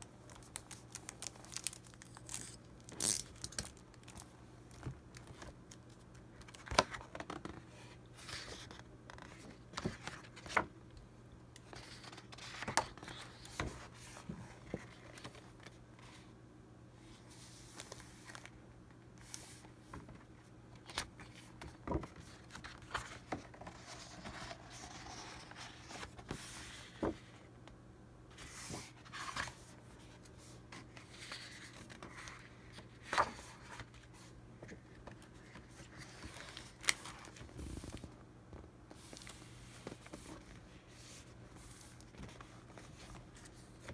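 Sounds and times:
paper rustling and sliding: 20.9 - 27.3, 28.3 - 34.8.

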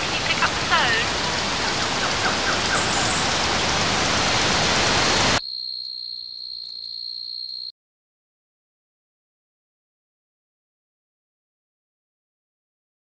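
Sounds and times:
rain hissing: 0.0 - 5.4
high ringing tone: 2.7 - 3.5, 5.3 - 7.7.

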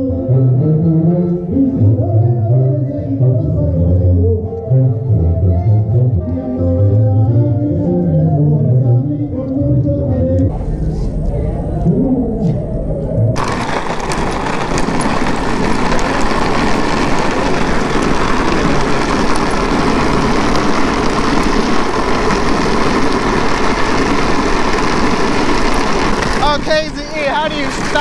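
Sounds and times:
bicycle tyres rolling on asphalt: 10.5 - 28.0
wind on microphone: 10.5 - 28.0.

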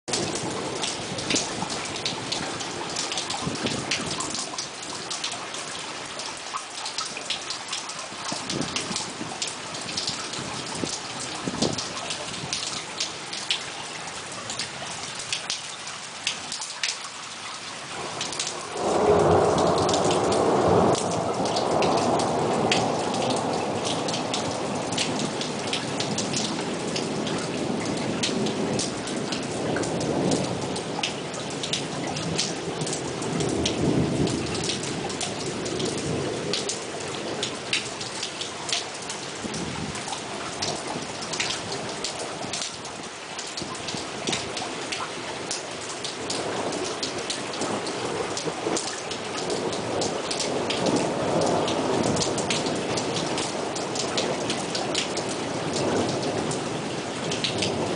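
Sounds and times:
steady rain falling: 0.0 - 57.9
thunder rumbling: 0.1 - 4.2, 18.0 - 37.8, 46.3 - 57.9
raindrops ticking: 0.1 - 57.9.

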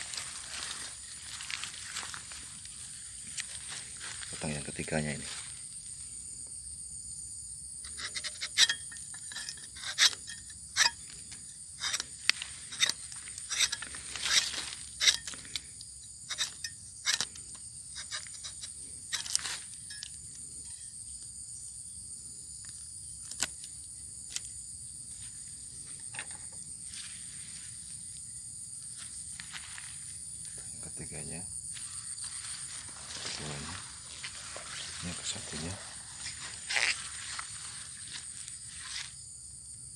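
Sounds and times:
knife scraping bark: 7.8 - 21.2, 22.5 - 24.7, 31.8 - 39.3.

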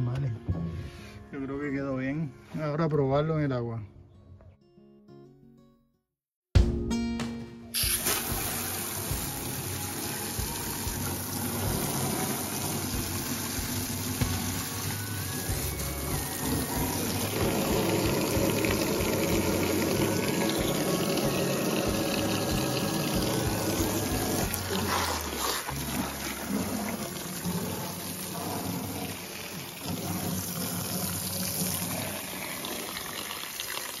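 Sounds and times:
water gushing from hose: 7.8 - 34.0.

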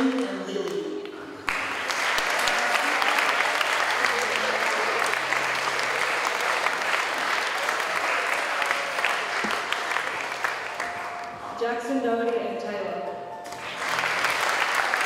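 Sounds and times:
audience applauding: 1.4 - 11.6, 13.4 - 15.0.

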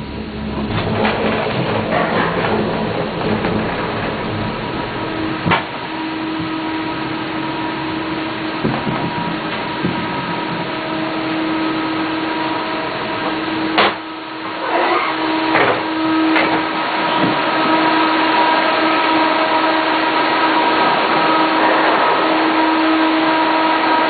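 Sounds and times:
rattles: 0.0 - 6.1
gondola lift machinery whirring hum: 0.0 - 24.0.

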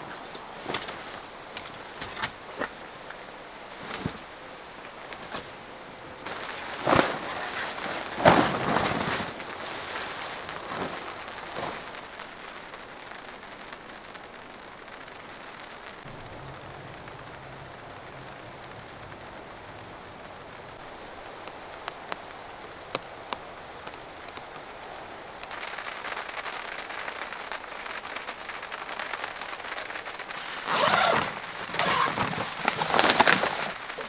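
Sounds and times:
tent fabric rustling: 0.0 - 13.2, 28.8 - 34.0
rain pattering: 0.0 - 34.0.

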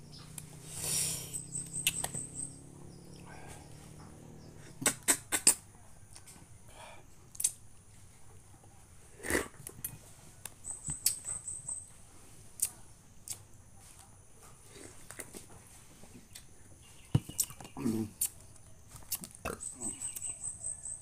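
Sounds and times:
sharp bites into fruit: 1.8 - 2.2, 4.7 - 5.6, 7.4 - 7.6
mouth smacks: 4.6 - 5.6, 7.3 - 7.6, 17.4 - 18.4.

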